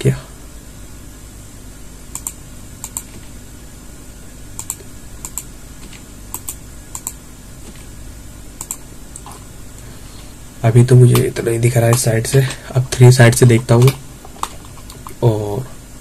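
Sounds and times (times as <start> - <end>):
faint low hum: 0.0 - 16.0
mouse double clicks: 2.1 - 3.2, 4.6 - 5.5, 6.3 - 7.2, 8.6 - 9.3.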